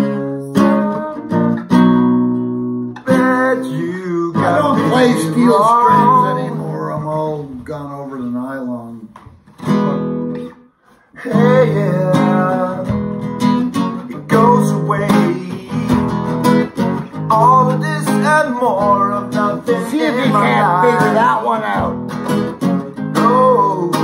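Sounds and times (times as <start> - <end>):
acoustic guitar strumming: 0.0 - 24.0
person singing: 3.0 - 9.0, 11.1 - 13.3, 13.9 - 22.1, 23.0 - 24.0.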